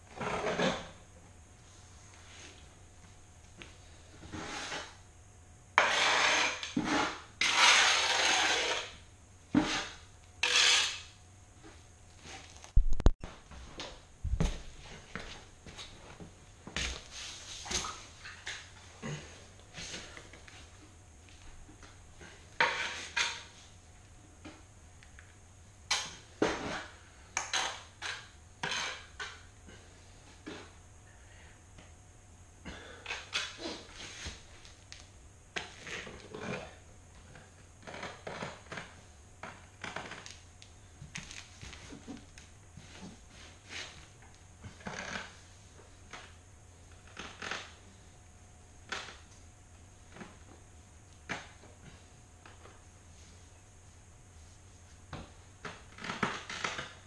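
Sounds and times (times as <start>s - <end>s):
hand tool scraping porcelain tile: 4.2s - 5.0s, 5.8s - 9.0s, 9.6s - 11.1s, 27.4s - 29.4s.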